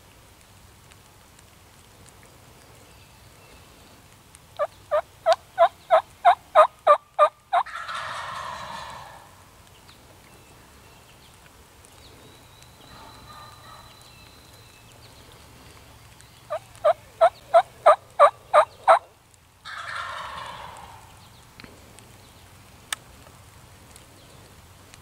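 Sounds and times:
turkey gobbling: 4.6 - 9.4, 12.9 - 14.0, 16.5 - 21.2
turkey call yelps: 4.9 - 9.3, 12.9 - 14.1, 16.5 - 21.1.

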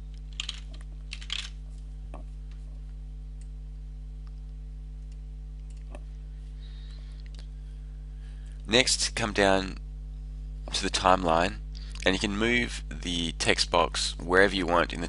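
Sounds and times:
low electrical hum: 0.0 - 15.0
computer keyboard typing: 0.3 - 1.5.

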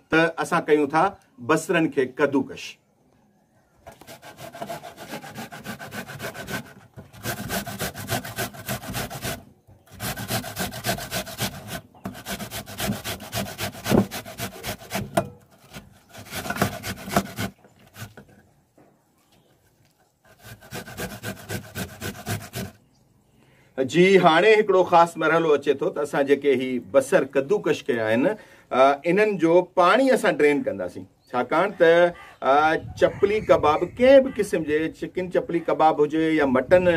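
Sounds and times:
onion rasping on a grater: 4.2 - 18.2, 20.3 - 22.8.

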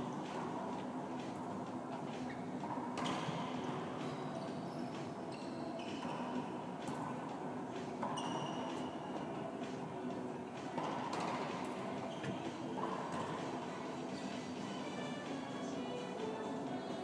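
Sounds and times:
sneakers squeaking on hardwood: 2.3 - 6.5, 8.0 - 8.9, 10.8 - 13.3.

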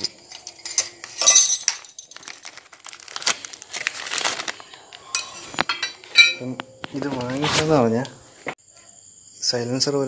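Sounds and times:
plastic packaging crinkling: 1.8 - 5.8.

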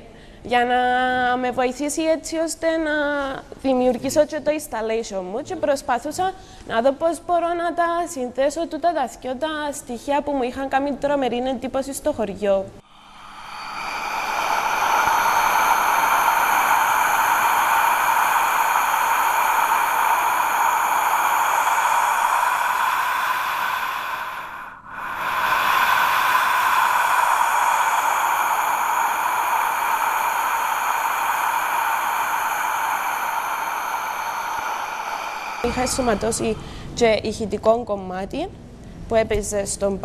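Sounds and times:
amplified human breathing: 0.0 - 0.4, 12.8 - 37.2.

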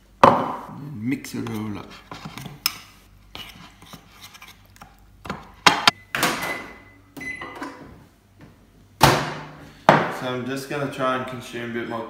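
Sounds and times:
microwave short beeps: 6.0 - 7.6.

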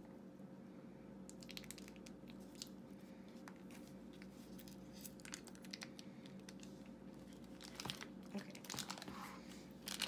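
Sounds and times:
plastic pouch crinkling and tearing: 1.4 - 2.8, 4.6 - 6.7, 7.3 - 9.1, 9.8 - 10.0.

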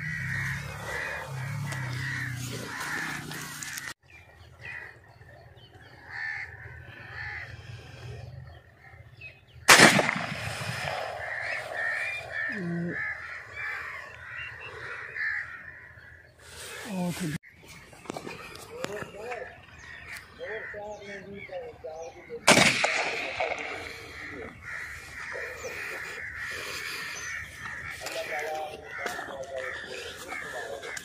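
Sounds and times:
birds calling: 0.0 - 31.0
shotgun shot: 9.7 - 11.2, 22.5 - 23.8.

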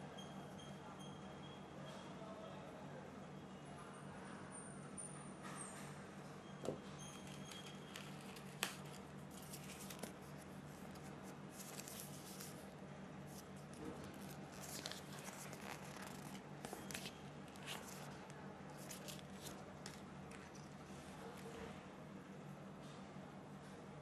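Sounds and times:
handling rustles and scrapes: 7.2 - 12.7, 13.3 - 21.7.

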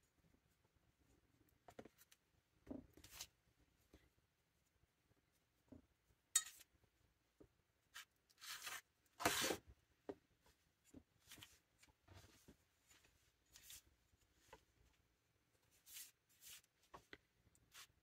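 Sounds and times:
soft rubbing and scraping: 10.4 - 18.0.

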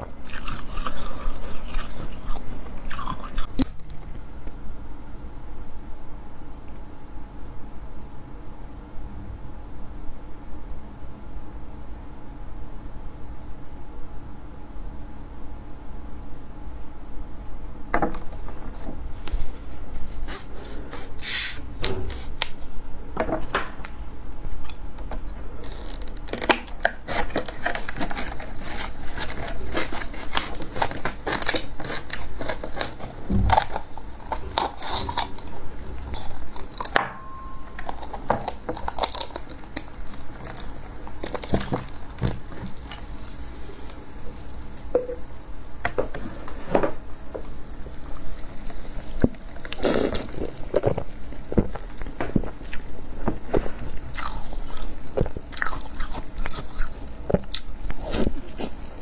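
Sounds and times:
plastic bottle crinkling: 25.6 - 37.0
scissors cutting plastic: 25.6 - 37.0, 37.7 - 43.1
biting into frozen slush: 47.9 - 59.0.

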